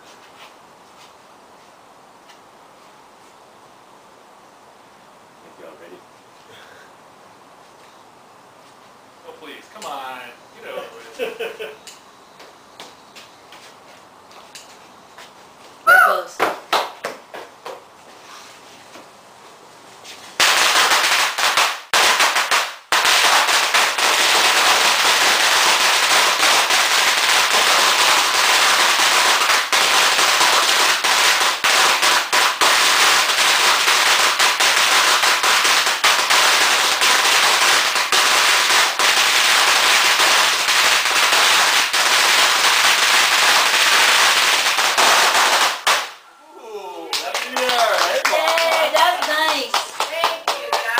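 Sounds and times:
firecrackers crackling: 20.2 - 46.3, 47.2 - 50.9.

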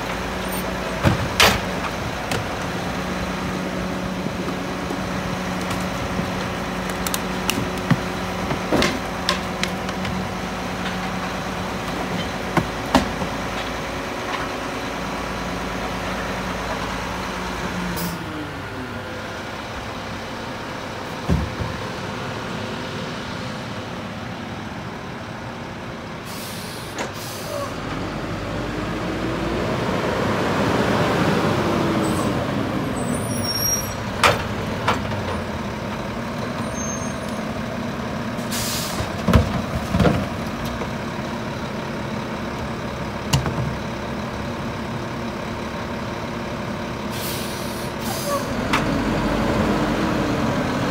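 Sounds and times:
knocks and clunks of refuse: 0.0 - 15.2, 21.0 - 22.2, 26.8 - 27.7, 33.3 - 44.8
garbage truck engine running: 0.0 - 50.9.

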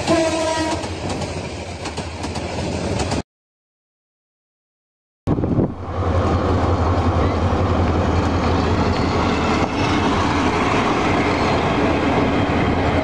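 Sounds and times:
carriages rumbling on rails: 0.0 - 3.2, 5.4 - 13.0
locomotive engine drone: 5.3 - 13.0.

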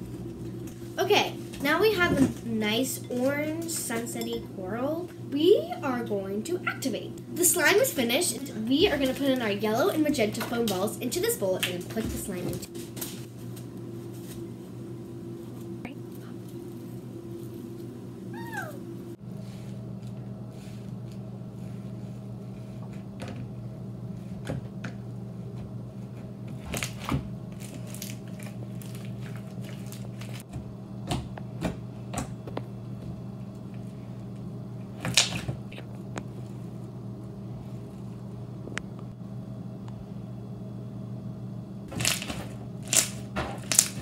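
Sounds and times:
steady low hum: 0.0 - 44.0
foam slime squishing and crackling: 26.7 - 30.4.

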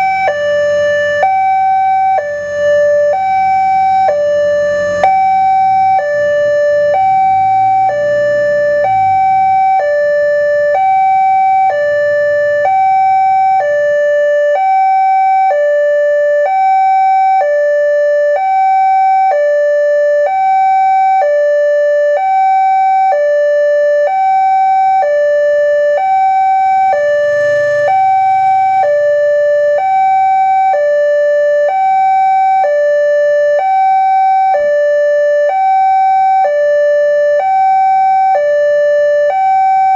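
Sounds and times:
level-crossing two-tone alarm: 0.0 - 39.9.

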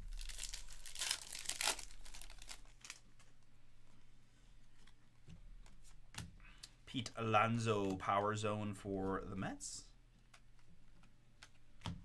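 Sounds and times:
wrapper tearing and crinkling: 0.0 - 3.1.

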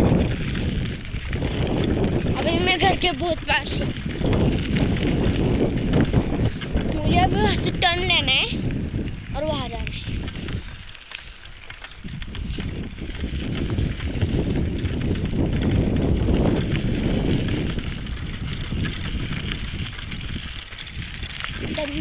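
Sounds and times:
wind noise on microphone: 0.0 - 22.0.

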